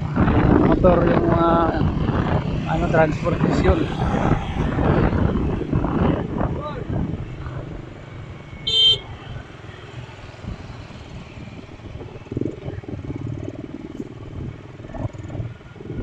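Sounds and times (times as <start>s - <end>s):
motorcycle engine rumble: 0.0s - 16.0s
road noise: 0.0s - 16.0s
horn beep: 8.7s - 9.0s.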